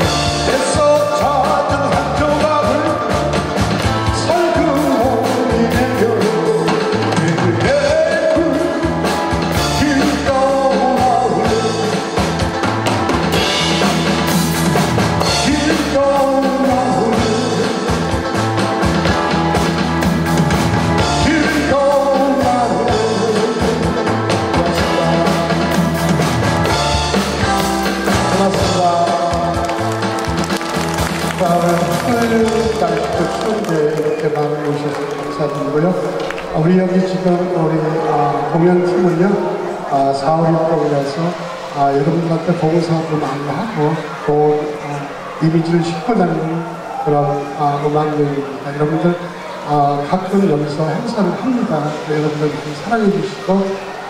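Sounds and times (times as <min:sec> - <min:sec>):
steady drum beat: 0:00.0 - 0:34.4
recorded backing track: 0:00.0 - 0:54.0
man singing into a microphone: 0:00.4 - 0:03.2, 0:04.2 - 0:09.0, 0:09.6 - 0:12.2, 0:15.3 - 0:18.2, 0:21.0 - 0:26.0, 0:28.2 - 0:29.8.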